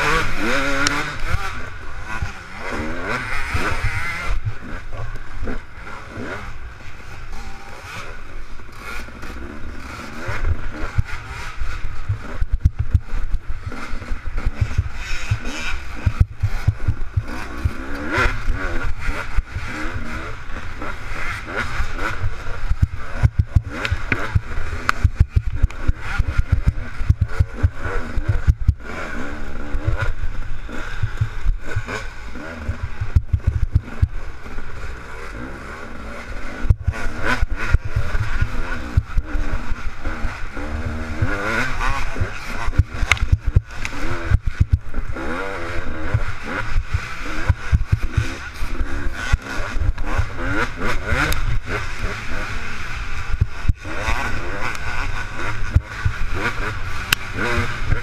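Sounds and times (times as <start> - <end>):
dirt bike engine racing: 0.0 - 58.0
short low thumps: 11.9 - 13.7, 14.4 - 17.8, 22.2 - 28.9, 29.8 - 31.9, 32.7 - 34.2, 36.7 - 37.0, 42.8 - 44.9.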